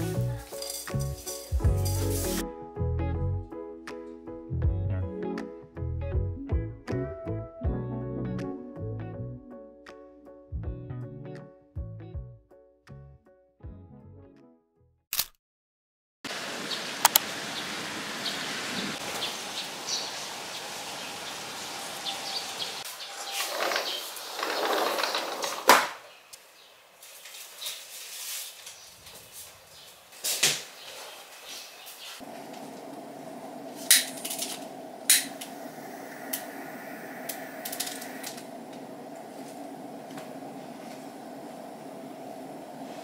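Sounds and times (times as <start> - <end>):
flame crackle: 0.2 - 2.4, 32.2 - 43.0
steady rain falling: 16.3 - 25.4, 32.2 - 43.0
bird chirps: 18.2 - 24.6
low hum: 32.2 - 43.0.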